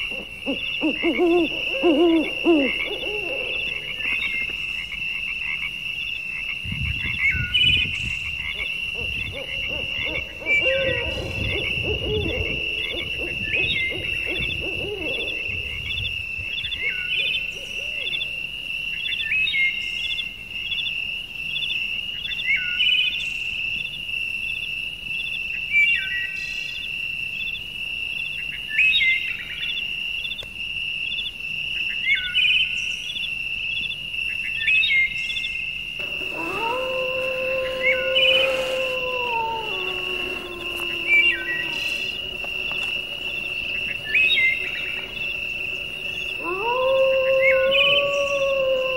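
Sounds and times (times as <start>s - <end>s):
low held animal call: 0.0s - 4.5s, 7.3s - 16.0s, 36.0s - 48.9s
high animal trill: 36.0s - 47.8s
low rumbling: 36.0s - 48.9s
short falling animal call: 36.0s - 48.9s.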